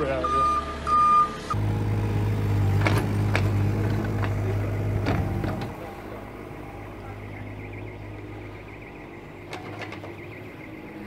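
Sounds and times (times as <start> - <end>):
engine humming: 0.0 - 11.0
vehicle reversing beeper: 0.1 - 1.6, 5.2 - 11.0.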